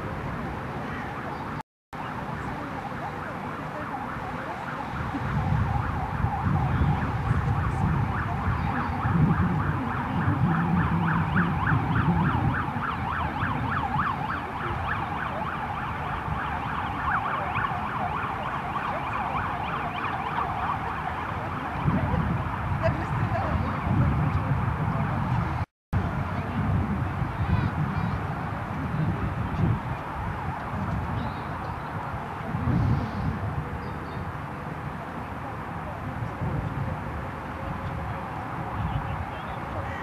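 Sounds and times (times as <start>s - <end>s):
siren rising and falling: 2.1s - 25.6s.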